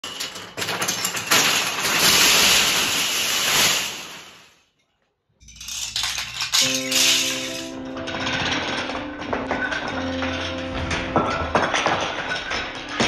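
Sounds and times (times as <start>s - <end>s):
wooden planks clattering: 5.7s - 13.0s
piano music: 6.6s - 13.0s.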